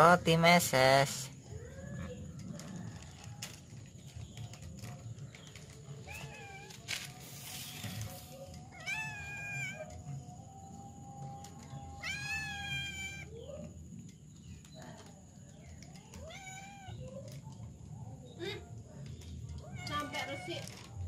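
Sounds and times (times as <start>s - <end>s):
cat meowing: 8.7s - 10.0s, 12.0s - 13.4s, 16.1s - 17.1s.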